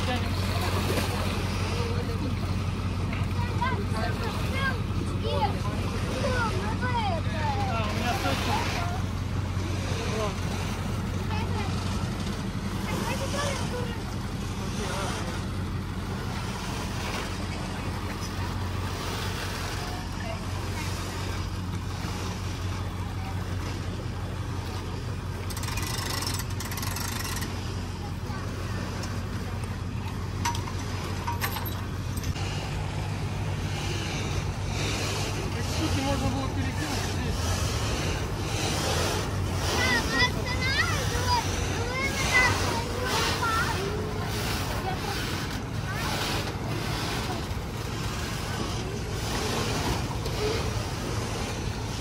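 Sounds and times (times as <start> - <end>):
engine idling: 0.0 - 52.0
outdoor background noise: 0.0 - 52.0
loud hissing rush: 32.4 - 52.0.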